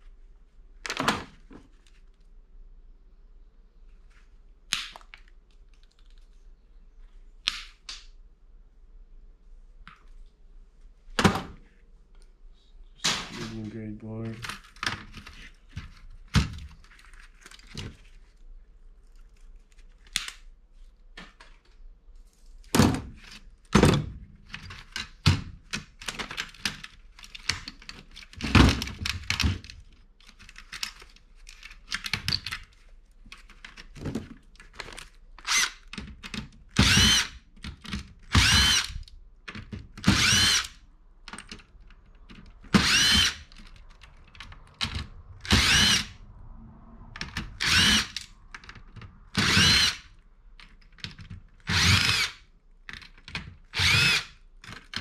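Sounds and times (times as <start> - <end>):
cordless drill whining: 35.4 - 35.8, 36.8 - 37.3, 38.3 - 39.0, 40.0 - 40.8, 42.8 - 43.5, 45.4 - 46.2, 47.6 - 48.3, 49.4 - 50.0, 51.7 - 52.5, 53.7 - 54.4.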